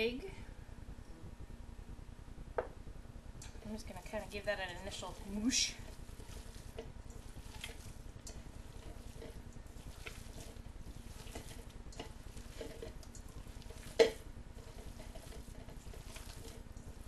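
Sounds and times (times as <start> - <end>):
hands squishing raw meat: 5.0 - 17.0.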